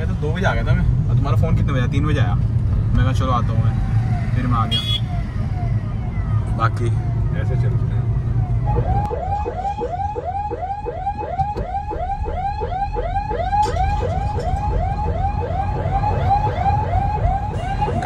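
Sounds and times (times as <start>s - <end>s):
engine and road rumble: 0.0s - 18.0s
vehicle siren yelping: 5.0s - 18.0s.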